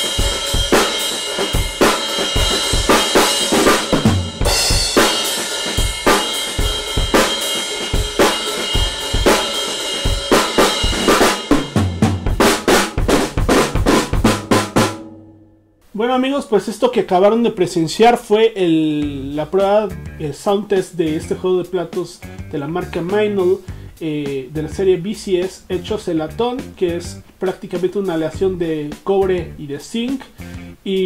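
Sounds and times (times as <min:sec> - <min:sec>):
ringing cymbals: 0:00.0 - 0:11.5
drum kit groove: 0:00.0 - 0:15.3, 0:18.6 - 0:31.0.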